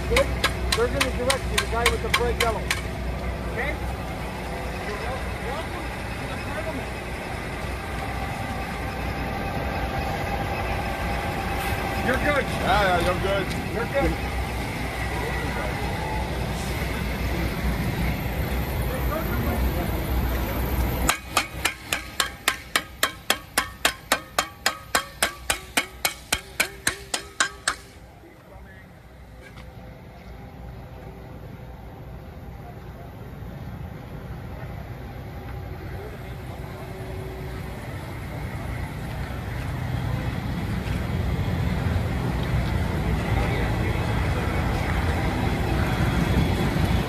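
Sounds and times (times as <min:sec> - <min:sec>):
diesel engine idling: 0:00.0 - 0:47.0
metal pan banging: 0:21.1 - 0:28.0.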